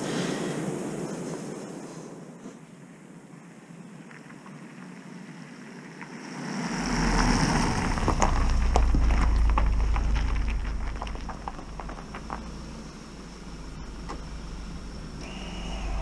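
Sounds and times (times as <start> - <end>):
gravel crackling under tyres: 0.0 - 16.0
car driving past: 6.3 - 16.0.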